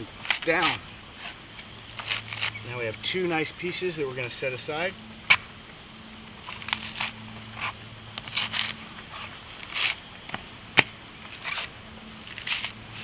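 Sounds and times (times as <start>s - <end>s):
coconut husk scraping rips: 0.0s - 3.4s, 6.4s - 13.0s.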